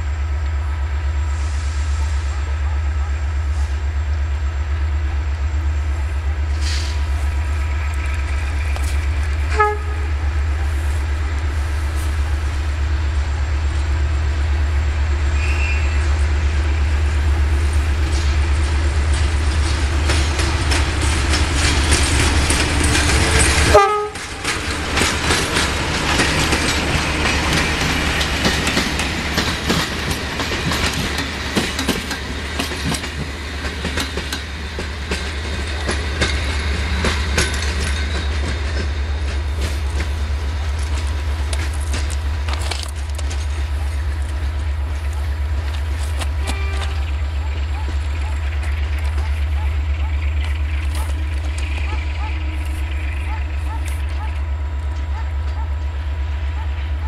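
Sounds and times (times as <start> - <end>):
diesel locomotive engines rumbling: 0.0 - 57.0
train wheels clicking over rail joints: 3.4 - 57.0
train horn blast: 9.4 - 11.0, 23.1 - 24.6, 46.3 - 48.8.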